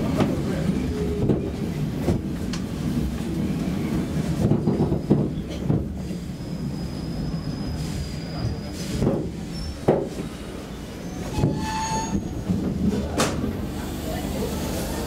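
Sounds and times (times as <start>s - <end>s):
subway train rumble: 0.0s - 15.0s
high wheel squeal: 6.1s - 8.9s, 10.9s - 12.6s.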